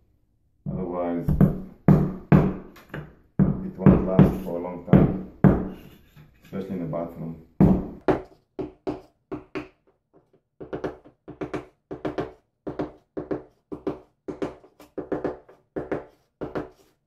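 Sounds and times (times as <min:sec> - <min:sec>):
hammer knocking on wooden block: 0:01.3 - 0:05.8, 0:07.6 - 0:09.8, 0:10.6 - 0:16.8.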